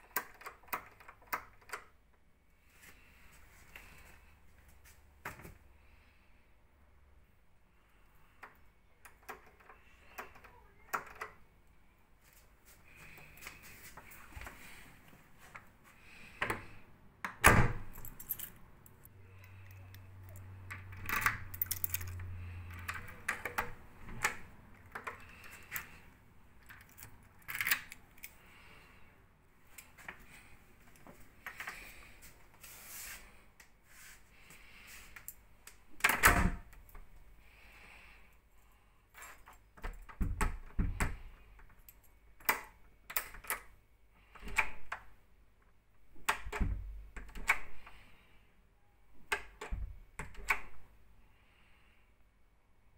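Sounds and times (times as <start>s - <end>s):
lock and door clicks: 0.0s - 2.0s, 8.4s - 11.4s, 16.4s - 18.6s, 19.5s - 26.0s, 26.6s - 28.4s, 36.0s - 36.8s, 42.4s - 43.7s, 44.3s - 45.1s, 46.2s - 47.9s, 49.2s - 50.8s
keys jangling: 17.8s - 18.6s, 19.4s - 24.3s, 26.6s - 28.4s.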